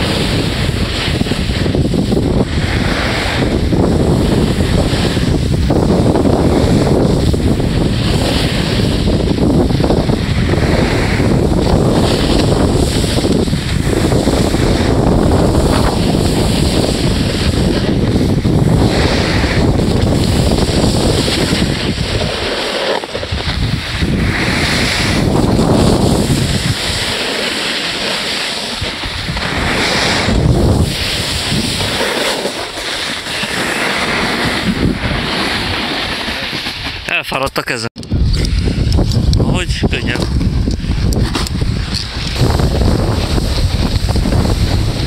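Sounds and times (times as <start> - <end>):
snow hissing under skis: 0.0 - 37.1, 39.7 - 45.0
wind buffeting microphone: 0.0 - 37.1, 38.0 - 45.0.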